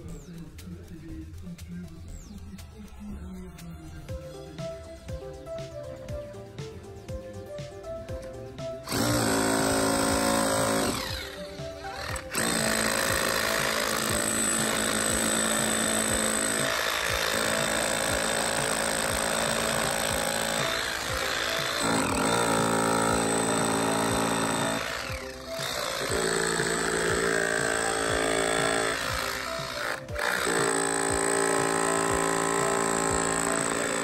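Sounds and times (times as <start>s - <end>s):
concrete vibrator running: 8.8s - 34.0s.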